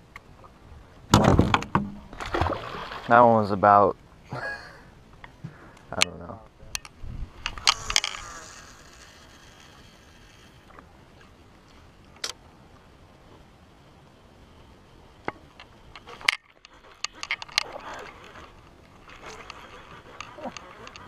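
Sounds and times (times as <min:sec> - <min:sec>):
faint background noise: 0:00.0 - 0:21.0
fishing reel clicks and taps: 0:06.8 - 0:10.6.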